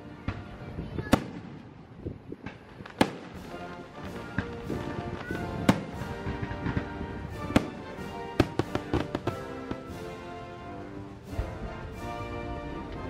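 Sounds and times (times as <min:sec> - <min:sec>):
faint firework pops: 0:02.3 - 0:06.9
band music: 0:03.2 - 0:13.0.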